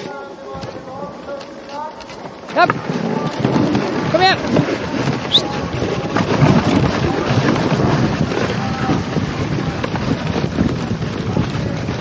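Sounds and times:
sled runners scraping on snow: 0.0 - 12.0
wind buffeting microphone: 2.6 - 12.0.

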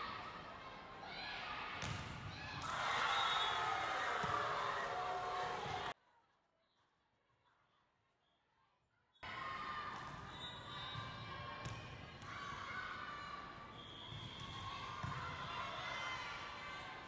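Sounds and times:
voices in a gym: 14.0 - 17.0.

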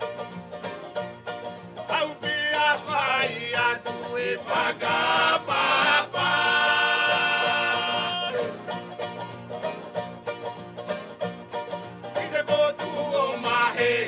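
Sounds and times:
plucked strings: 0.0 - 14.0
person singing: 1.9 - 8.7, 12.1 - 14.0.

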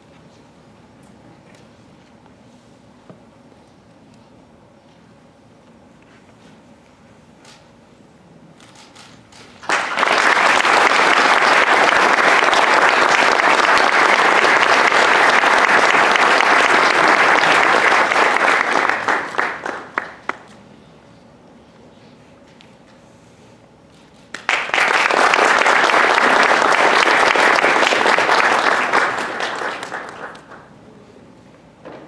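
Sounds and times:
audience applauding: 9.6 - 20.5, 24.3 - 30.7.

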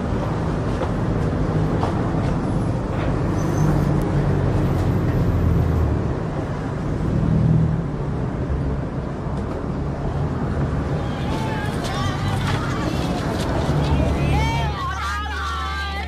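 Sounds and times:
road traffic rumble: 0.0 - 16.0
vehicles passing by: 0.0 - 16.0.

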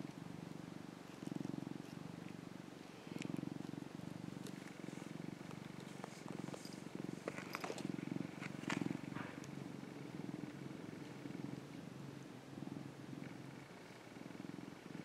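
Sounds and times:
cat purring: 0.0 - 15.0
light clicks and rustles: 5.4 - 9.5.

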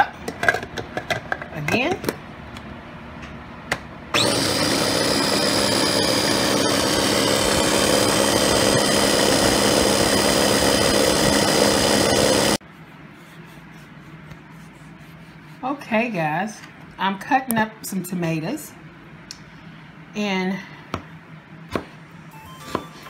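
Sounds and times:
food processor motor whine: 4.1 - 12.6.

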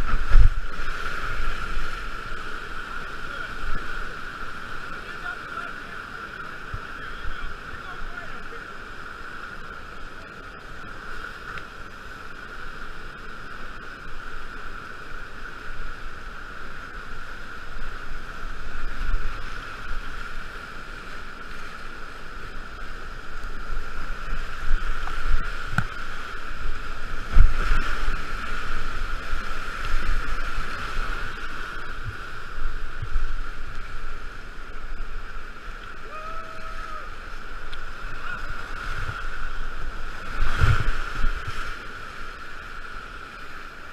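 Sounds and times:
waves breaking over bow: 0.0 - 43.9
whitewater rapids rushing: 0.0 - 43.9
paddle strokes in water: 37.1 - 42.9.

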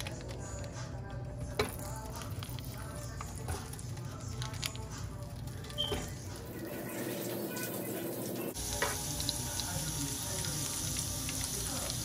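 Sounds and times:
sausages sizzling in oil: 5.3 - 12.0.

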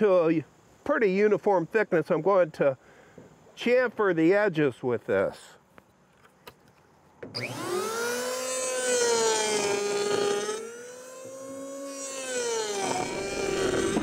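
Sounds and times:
electric planer motor whine: 7.3 - 14.0.

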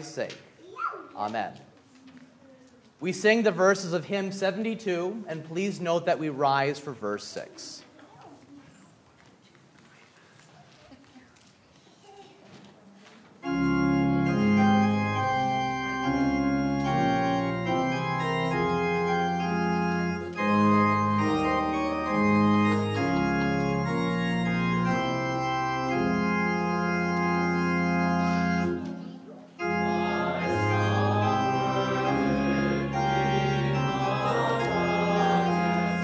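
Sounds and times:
church organ playing a hymn: 13.4 - 36.0.

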